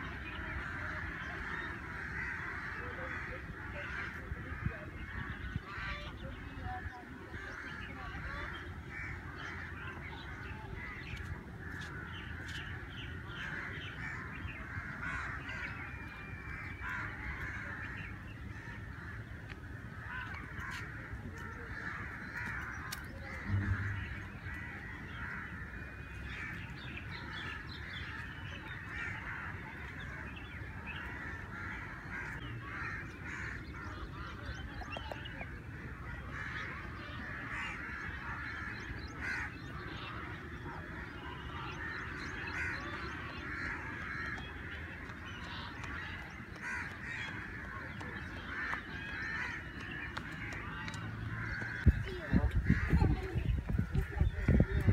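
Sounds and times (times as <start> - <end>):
birds calling in dawn chorus: 0.0 - 54.9
steady low rumble: 23.3 - 25.2.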